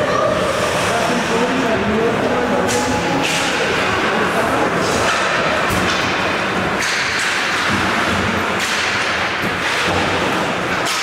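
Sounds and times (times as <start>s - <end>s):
noisy rink wash: 0.0s - 11.0s
hockey sticks and puck knocking: 5.0s - 11.0s.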